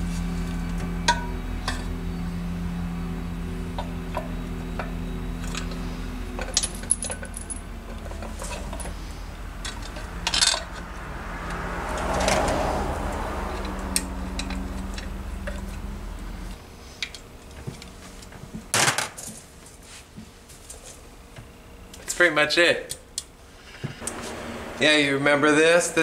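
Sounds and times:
steady low hum: 0:00.0 - 0:26.0
metal clatter: 0:03.8 - 0:10.9
metal parts clinking on engine: 0:03.8 - 0:10.9, 0:13.5 - 0:15.9.

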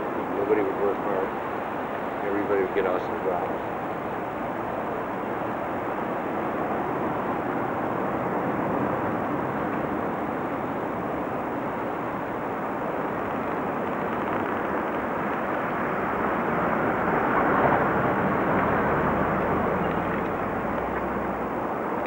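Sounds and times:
wind: 0:00.0 - 0:22.0.

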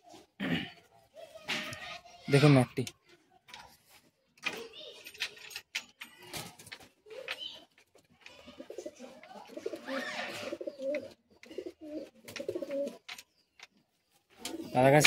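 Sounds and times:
pigeons cooing: 0:08.2 - 0:13.4, 0:14.3 - 0:14.8.

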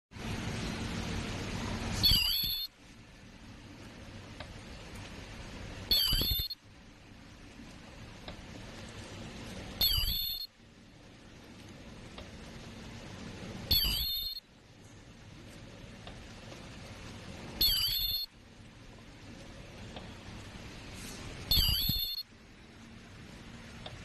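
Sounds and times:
machine humming: 0:00.2 - 0:24.0
machine squeal and hiss burst: 0:02.0 - 0:02.7, 0:05.9 - 0:06.6, 0:09.8 - 0:10.5, 0:13.7 - 0:14.4, 0:17.6 - 0:18.3, 0:21.5 - 0:22.2.

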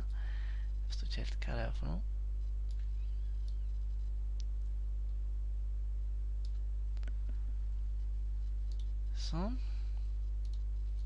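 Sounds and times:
low electrical hum: 0:00.0 - 0:11.0
computer mouse clicks: 0:06.4 - 0:07.2, 0:08.6 - 0:09.0, 0:10.4 - 0:10.7.

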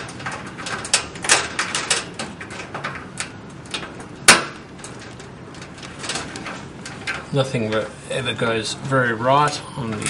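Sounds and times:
clicks and scrapes of wire: 0:00.0 - 0:07.9.

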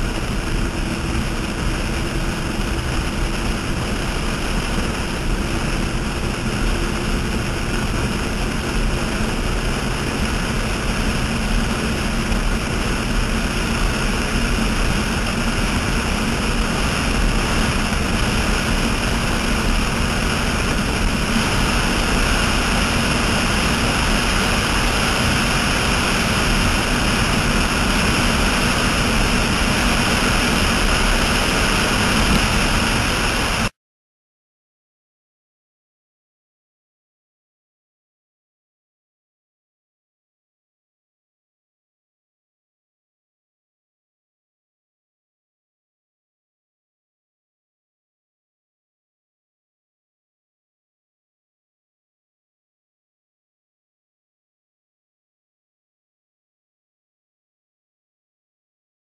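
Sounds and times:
boat engine noise: 0:00.0 - 0:33.7
rushing wind: 0:00.0 - 0:33.7
water spray: 0:14.7 - 0:33.7.

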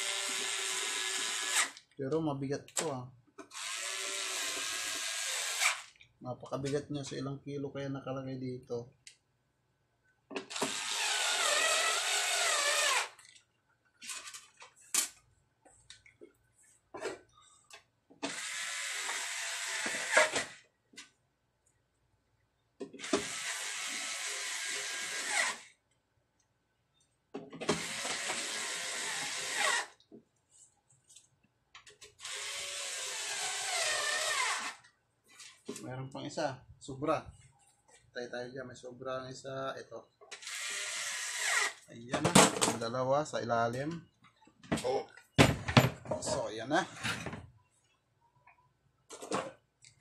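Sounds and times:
electric screwdriver whining: 0:00.0 - 0:01.8, 0:03.4 - 0:05.9, 0:10.4 - 0:13.2, 0:18.2 - 0:20.6, 0:22.9 - 0:25.7, 0:27.6 - 0:30.0, 0:32.2 - 0:34.8, 0:40.3 - 0:41.8.

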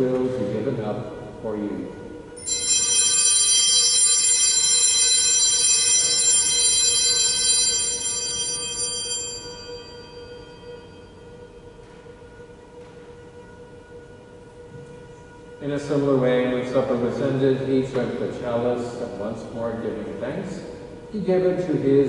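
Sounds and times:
altar bell ringing: 0:02.3 - 0:11.9.

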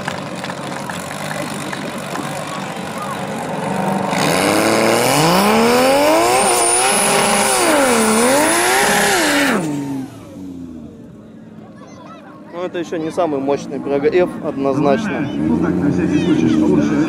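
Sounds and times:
car engine revving: 0:00.0 - 0:11.2, 0:14.9 - 0:17.0.

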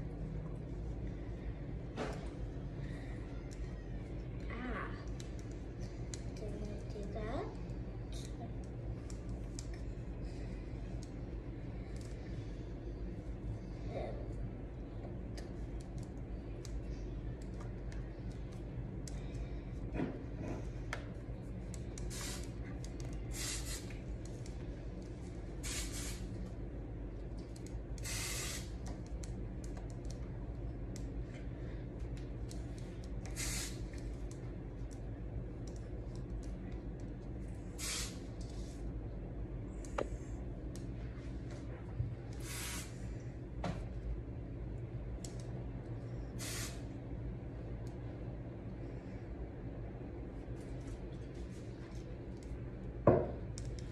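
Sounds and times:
steady low hum: 0:00.0 - 0:53.9
hair spray hissing: 0:22.1 - 0:22.6, 0:23.3 - 0:24.0, 0:25.6 - 0:26.3, 0:28.0 - 0:28.8, 0:33.3 - 0:33.9, 0:37.8 - 0:38.3, 0:42.4 - 0:43.0, 0:46.4 - 0:46.9.

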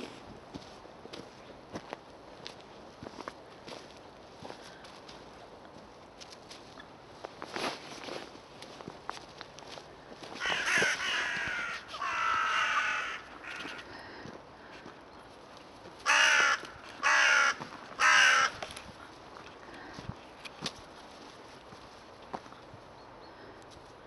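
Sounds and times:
crows cawing: 0:10.2 - 0:14.9, 0:16.0 - 0:18.9.

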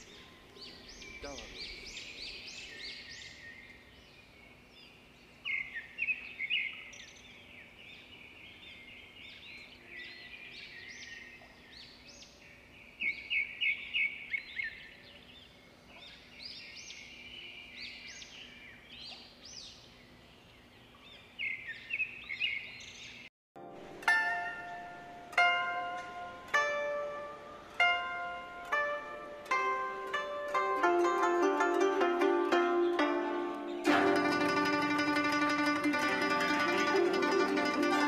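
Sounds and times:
small birds chirping: 0:00.0 - 0:23.3.

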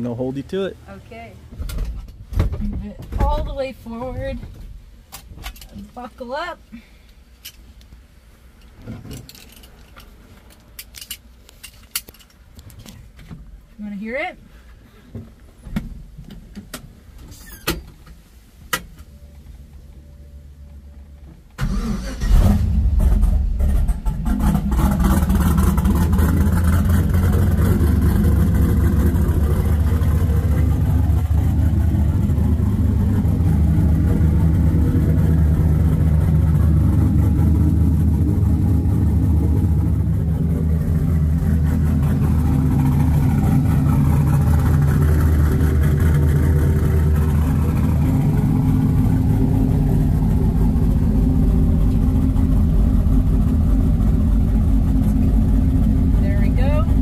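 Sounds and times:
car engine starting and idling: 0:15.3 - 0:57.0.

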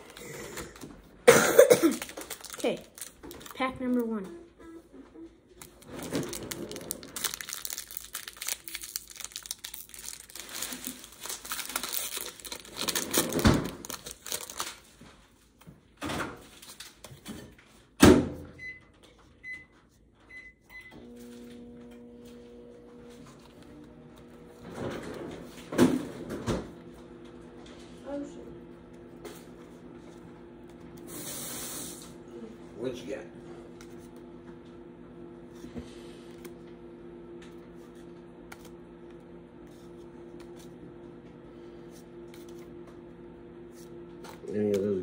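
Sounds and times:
foil wrapper crinkling and tearing: 0:01.8 - 0:04.0, 0:05.6 - 0:15.0.

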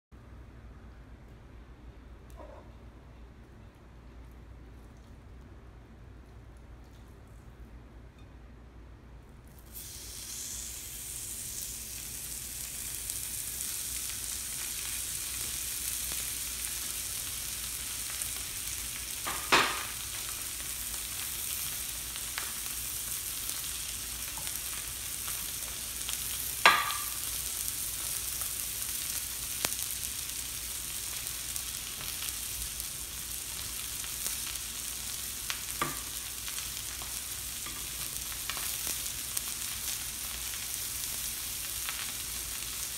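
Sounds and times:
steak sizzling on griddle: 0:09.6 - 0:42.9.

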